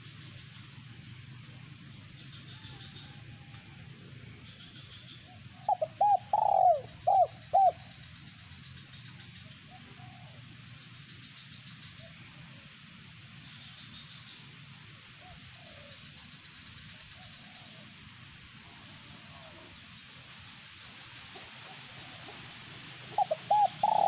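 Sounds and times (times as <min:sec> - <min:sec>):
dove cooing: 0:05.3 - 0:07.8, 0:23.0 - 0:24.0.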